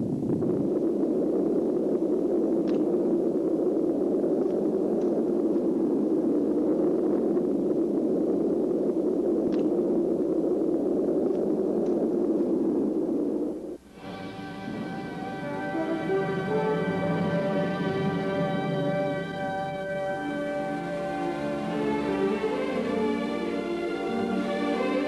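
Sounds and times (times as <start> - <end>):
steady rushing noise: 0.0 - 25.0
faint clicks: 2.5 - 13.8.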